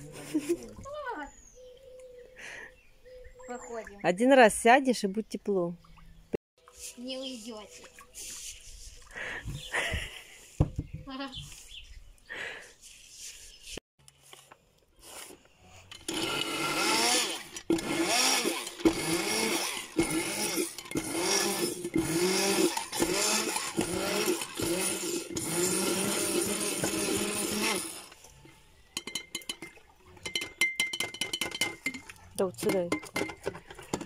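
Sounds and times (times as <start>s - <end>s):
stick blender running in glass jar: 16.0s - 28.2s.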